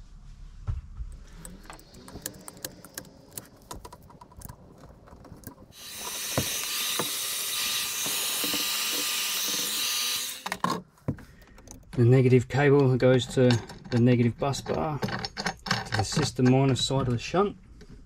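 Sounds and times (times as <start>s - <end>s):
tools clicking and rattling: 1.2s - 17.2s
heat gun blowing: 5.7s - 10.6s.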